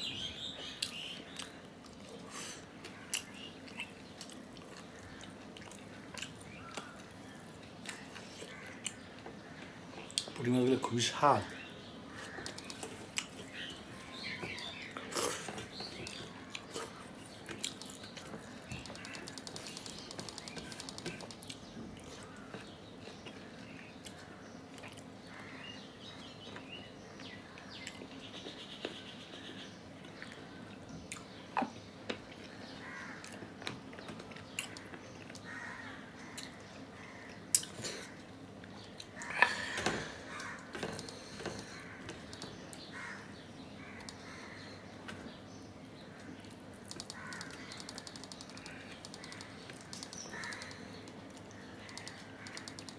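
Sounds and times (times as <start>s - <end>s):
chewing and mouth sounds: 2.8s - 7.0s, 24.0s - 25.1s
crow cawing: 32.8s - 33.3s, 34.8s - 37.4s, 39.2s - 42.2s, 42.9s - 44.8s, 47.1s - 48.0s, 50.2s - 51.0s.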